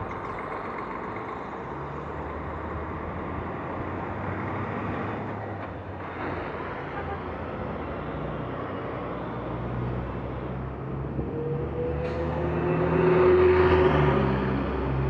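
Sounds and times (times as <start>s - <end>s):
bus engine rumble: 0.0s - 15.0s
vehicle passing close: 8.0s - 15.0s.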